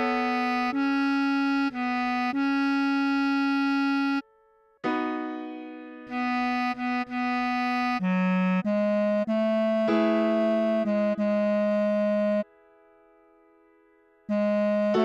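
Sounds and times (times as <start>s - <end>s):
bass clarinet melody: 0.0s - 4.3s, 6.1s - 12.5s, 14.3s - 15.0s.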